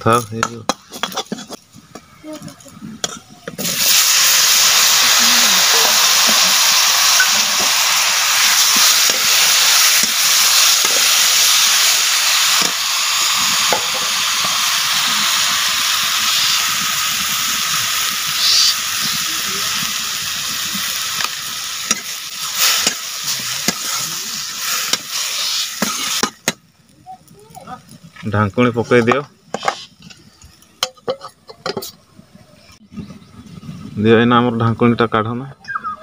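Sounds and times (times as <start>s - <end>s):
vegetables sizzling in hot oil: 2.6s - 29.9s.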